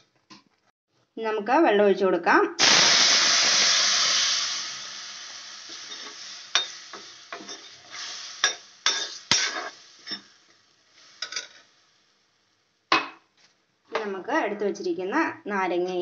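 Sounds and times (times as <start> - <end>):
water sizzling in hot oil: 2.6 - 11.8
spoon scraping a metal pan: 5.8 - 10.3, 11.2 - 11.6.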